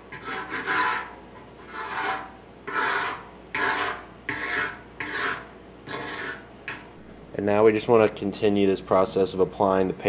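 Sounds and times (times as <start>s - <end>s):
paint scraper scraping metal: 0.0s - 6.5s.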